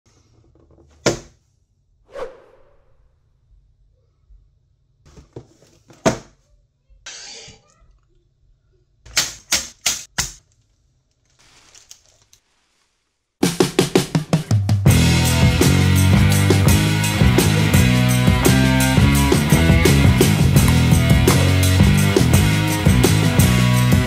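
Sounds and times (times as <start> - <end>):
cardboard and plastic bags rustling: 10.5 - 13.2
background music with drums: 13.4 - 24.0.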